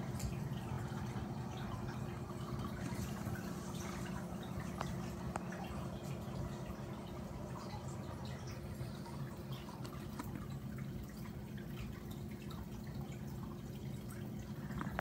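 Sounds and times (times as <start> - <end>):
steady low hum: 0.0 - 15.0
water trickling and dripping: 0.0 - 15.0.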